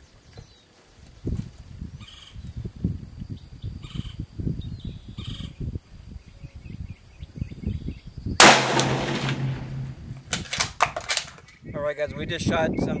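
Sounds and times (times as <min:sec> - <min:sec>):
wind buffeting microphone: 0:01.2 - 0:10.8, 0:11.6 - 0:13.0
rifle shot: 0:08.4 - 0:11.2.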